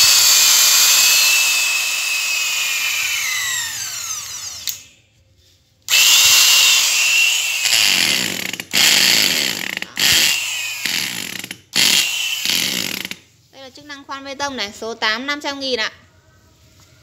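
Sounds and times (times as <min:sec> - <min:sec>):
electric drill motor whine: 0:00.0 - 0:04.9, 0:05.9 - 0:13.1.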